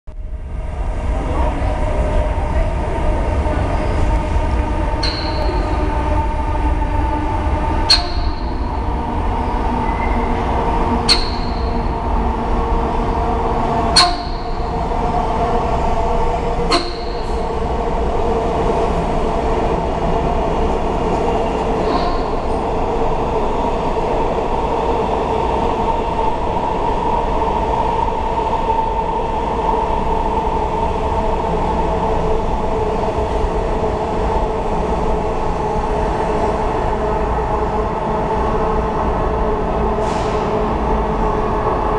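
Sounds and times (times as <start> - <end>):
train rumbling through station: 0.1 - 41.9
sharp ringing clacks: 5.0 - 5.8, 11.1 - 11.8.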